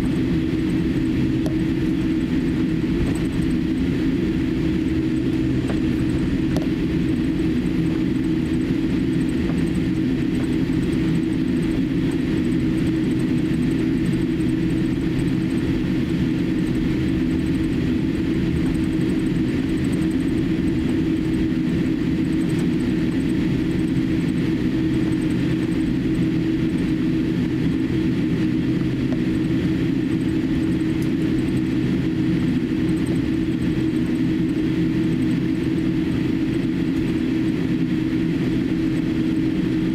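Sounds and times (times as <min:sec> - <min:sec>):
airliner cabin drone: 0:00.0 - 0:39.9.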